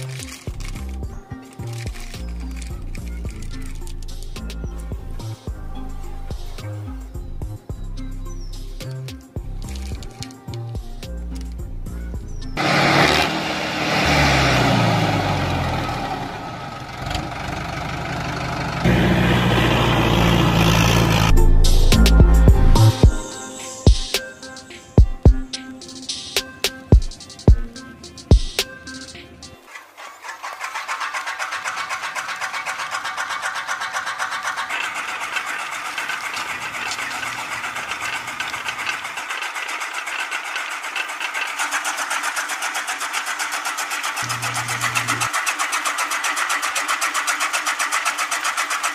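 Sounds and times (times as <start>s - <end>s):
tractor engine running: 0.0s - 48.9s
mill grinding rattle: 12.5s - 22.0s, 22.9s - 48.9s
small electric motor running: 29.9s - 48.9s.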